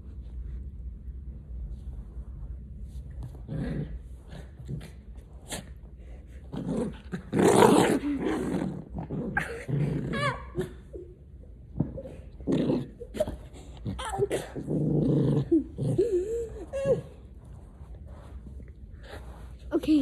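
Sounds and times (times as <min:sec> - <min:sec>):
dog growling: 0:06.5 - 0:10.9, 0:12.4 - 0:17.1.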